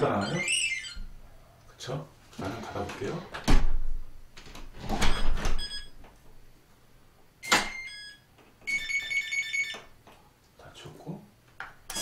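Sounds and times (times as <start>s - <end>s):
alarm beeps: 5.1s - 6.0s.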